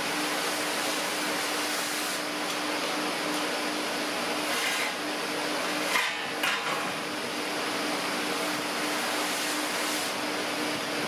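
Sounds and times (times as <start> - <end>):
forge blower rushing air: 0.0 - 11.0.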